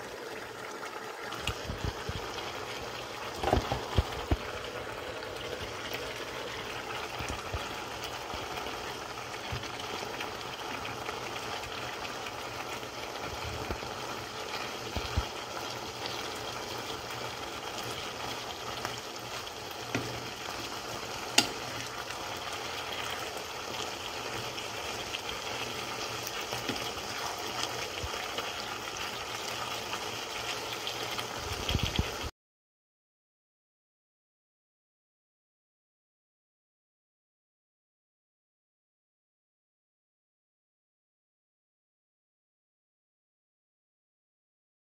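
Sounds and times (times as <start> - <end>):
food sizzling in a frying pan: 0.0 - 32.3.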